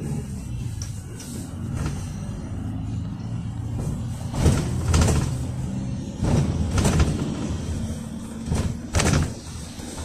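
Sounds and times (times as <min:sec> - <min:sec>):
minibus engine running: 0:00.0 - 0:10.0
vehicle body knocks and rattles: 0:03.7 - 0:10.0.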